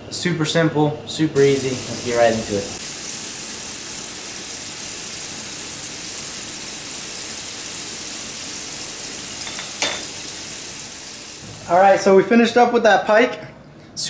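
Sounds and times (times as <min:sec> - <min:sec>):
fish frying in oil: 0:01.4 - 0:11.5.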